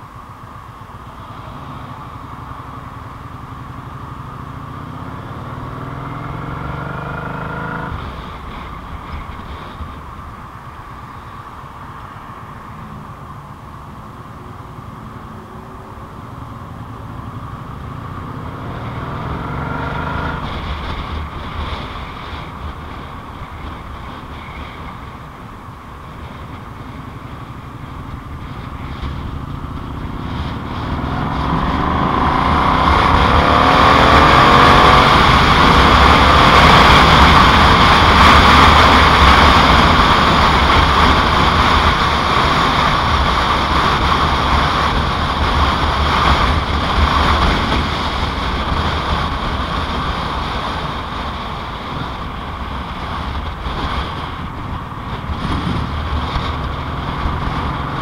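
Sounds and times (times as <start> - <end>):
wind and road noise: 0.0 - 58.0
motorcycle engine running: 15.9 - 58.0.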